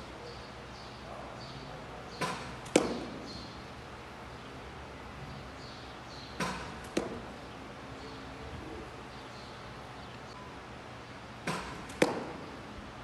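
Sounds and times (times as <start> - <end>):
baseball hitting catcher's gear: 2.2 - 3.6, 6.4 - 7.4, 11.4 - 12.6.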